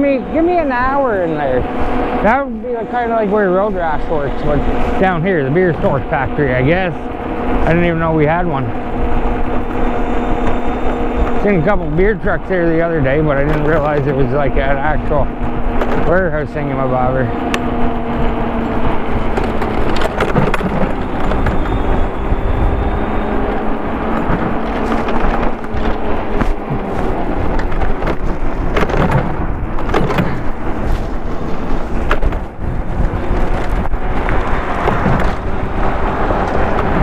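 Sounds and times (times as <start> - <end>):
bike rattling over bumps: 0.0 - 37.0
wind buffeting microphone: 0.0 - 37.0
tyre rumble on road: 4.0 - 37.0.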